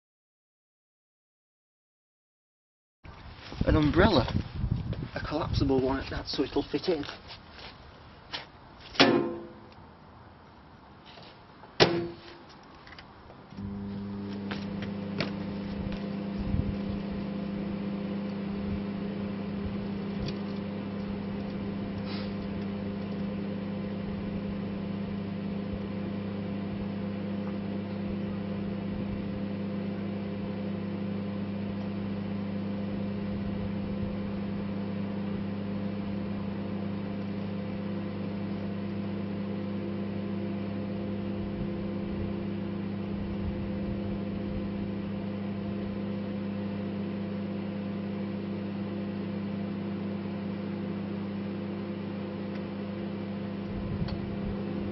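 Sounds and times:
microwave oven humming: 13.6 - 54.9.

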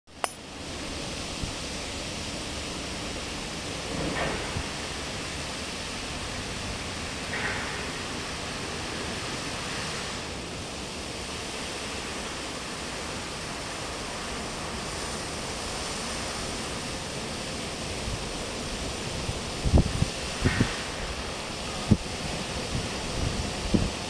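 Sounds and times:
fountain water splashing: 0.4 - 24.0.

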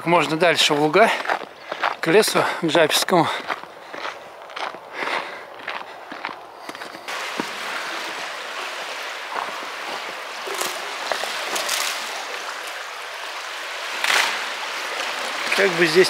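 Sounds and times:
footsteps on icy snow: 0.1 - 12.9
floodwater rushing: 7.1 - 16.0.

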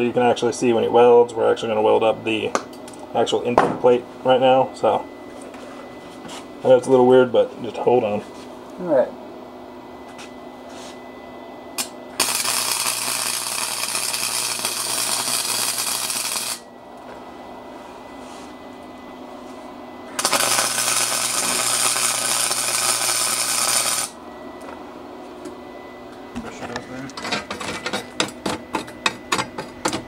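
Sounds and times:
low electrical hum: 0.0 - 30.0
arc welder crackling sizzle: 11.8 - 17.0, 20.1 - 24.2.

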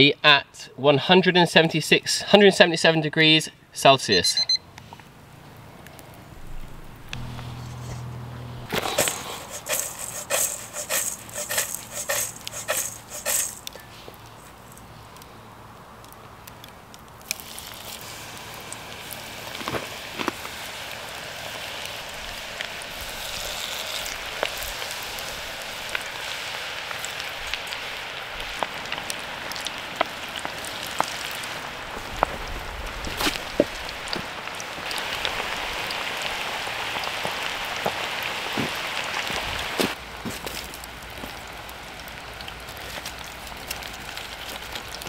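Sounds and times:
food deep-frying in oil: 8.7 - 15.0, 16.5 - 45.0.

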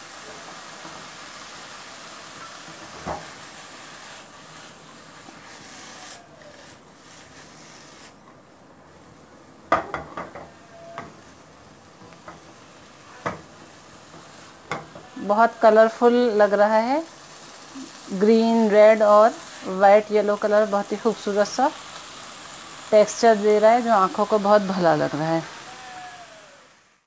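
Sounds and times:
vegetables sizzling in a wok: 0.0 - 27.0
spatula knocking and scraping pan: 2.4 - 3.5, 9.7 - 11.3, 13.2 - 15.1.

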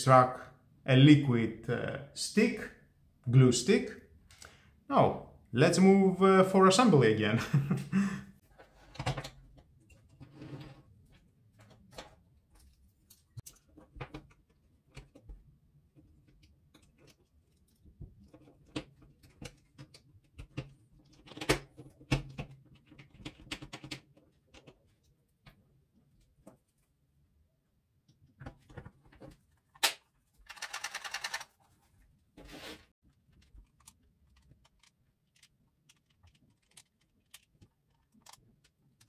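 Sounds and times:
plastic parts clicking: 29.7 - 31.6, 33.3 - 39.0.

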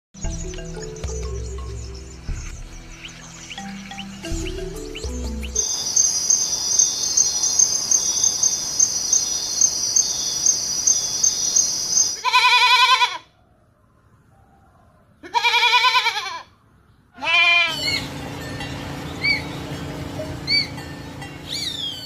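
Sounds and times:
pulsing insect trill: 0.2 - 12.2
goat bleating: 12.2 - 13.3, 15.2 - 16.5, 17.2 - 18.0.

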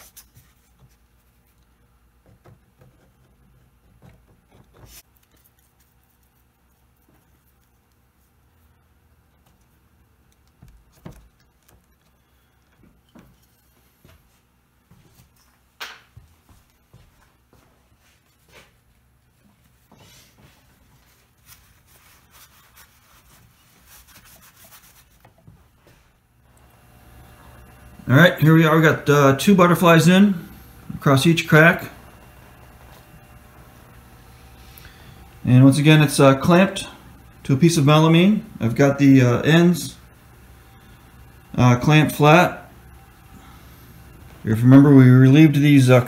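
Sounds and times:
paper towel rubbing on wood: 19.6 - 25.6.

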